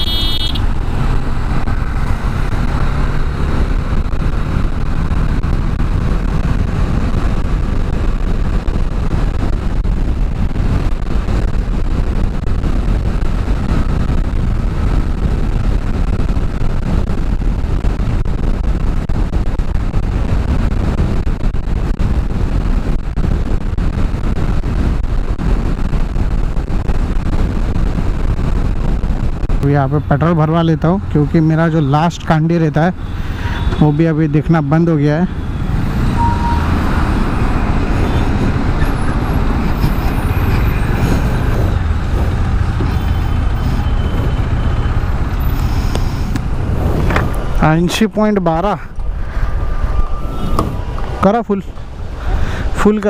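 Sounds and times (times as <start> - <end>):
wind rush on microphone: 0.0 - 53.0
motorcycle engine running: 37.5 - 45.6.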